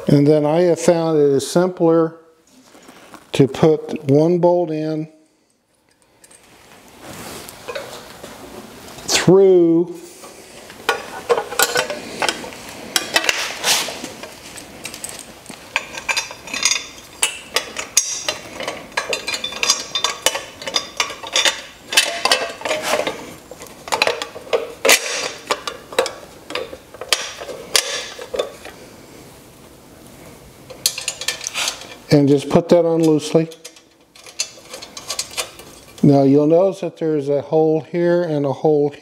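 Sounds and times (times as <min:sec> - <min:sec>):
metal tubes clinking and knocking: 0:10.9 - 0:13.6, 0:14.2 - 0:28.8, 0:30.7 - 0:36.0.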